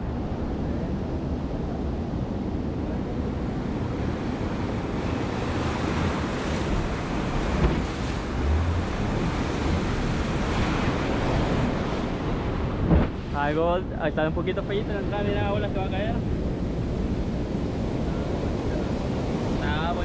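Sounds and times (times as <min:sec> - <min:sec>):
water rushing around boat hull: 0:00.0 - 0:20.0
wind buffeting microphone: 0:00.0 - 0:20.0
surf breaking: 0:05.1 - 0:20.0.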